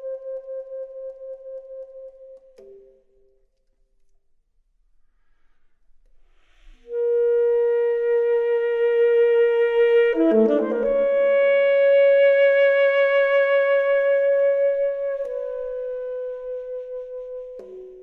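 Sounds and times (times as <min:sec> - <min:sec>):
solo woodwind: 0:00.0 - 0:03.7, 0:06.0 - 0:18.0.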